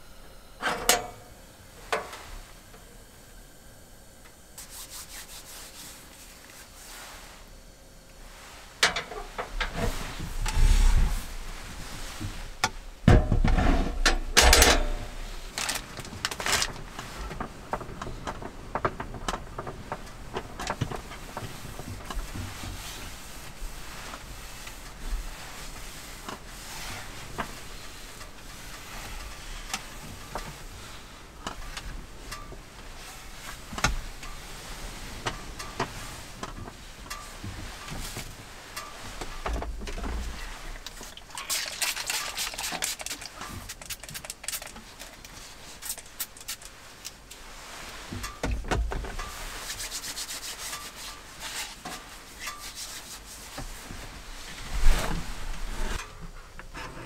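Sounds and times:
cloth wiping tabletop: 4.6s - 7.4s.

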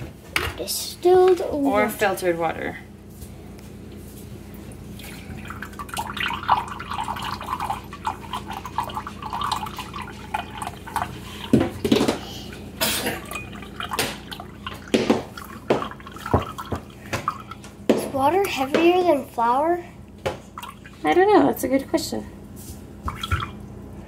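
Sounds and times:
water trickling into a glass cup: 5.0s - 11.5s, 13.1s - 17.6s, 20.6s - 21.0s.

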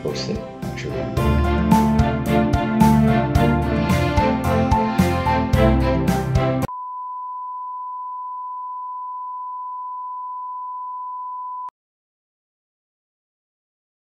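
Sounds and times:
background music: 0.0s - 6.7s
steady test tone beep: 6.7s - 11.7s.

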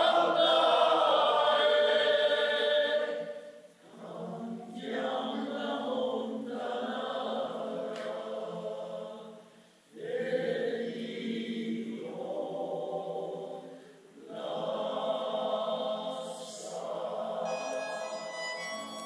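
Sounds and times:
choir singing: 0.0s - 9.4s, 10.0s - 19.0s.

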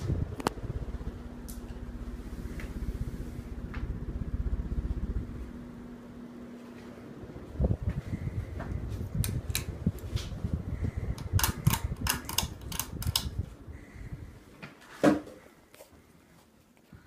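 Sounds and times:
ceiling fan running: 0.0s - 17.0s
pull chain clicks and rattles: 11.2s - 13.3s.

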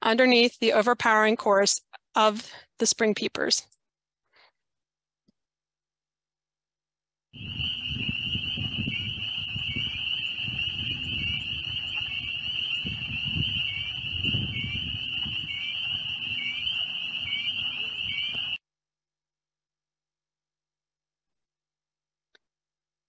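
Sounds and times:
spring peepers peeping: 7.4s - 18.6s.

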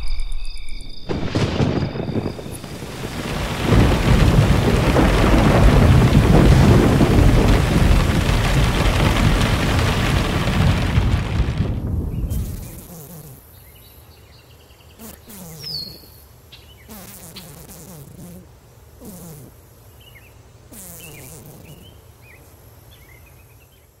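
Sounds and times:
high insect-like chirps: 0.0s - 3.1s, 12.1s - 24.0s
thunder: 1.0s - 12.9s
rain: 1.1s - 13.4s.

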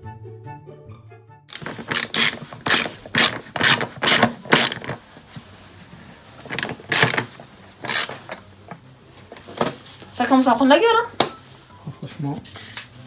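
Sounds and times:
ratchet wrench clicking: 1.5s - 5.0s, 6.5s - 8.2s.

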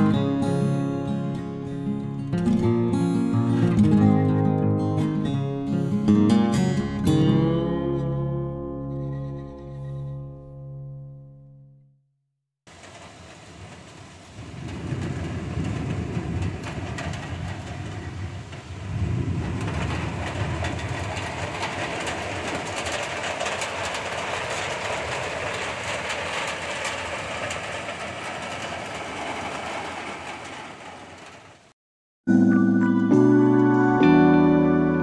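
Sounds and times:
heavy rain hiss: 12.7s - 31.7s
thunder rolling: 12.7s - 31.7s.

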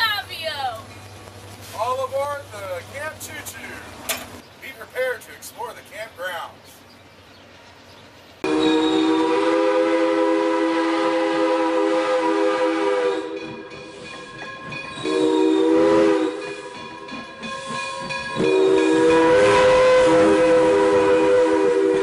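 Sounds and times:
passing train: 0.0s - 22.0s
steam locomotive whistle: 8.4s - 13.6s, 14.9s - 16.8s, 18.4s - 22.0s
steam hiss: 13.7s - 22.0s.

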